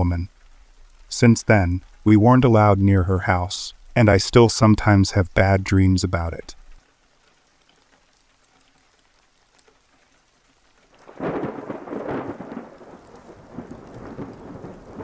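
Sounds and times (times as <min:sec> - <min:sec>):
faint rain: 0:00.0 - 0:15.0
thunder rumbling: 0:11.0 - 0:15.0.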